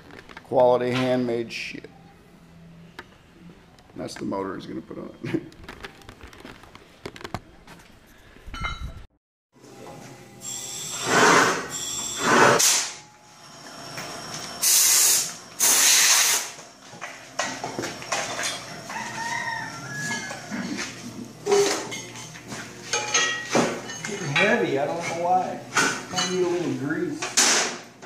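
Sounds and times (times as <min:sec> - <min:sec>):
loud hissing bursts: 0:14.6 - 0:16.6.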